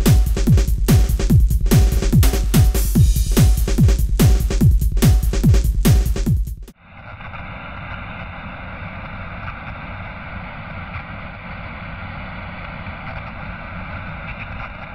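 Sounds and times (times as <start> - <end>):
television static hiss: 6.8 - 14.9.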